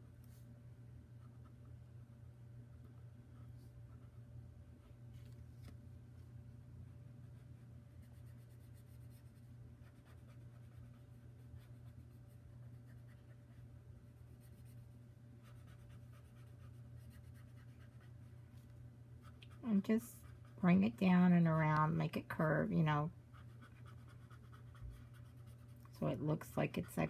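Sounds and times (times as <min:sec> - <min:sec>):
low steady hum: 0:00.0 - 0:27.0
pen scratching on paper: 0:23.3 - 0:25.8.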